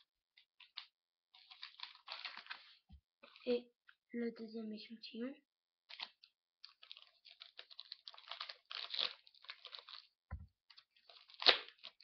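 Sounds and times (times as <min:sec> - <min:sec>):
wrapper tearing and crinkling: 0:00.6 - 0:03.5, 0:05.9 - 0:12.0.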